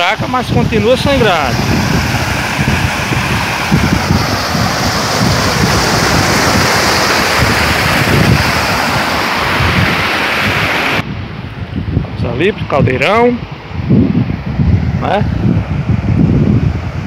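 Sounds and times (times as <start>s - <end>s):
water rushing over rock spillway: 0.0s - 11.0s
wind buffeting microphone: 0.0s - 17.0s.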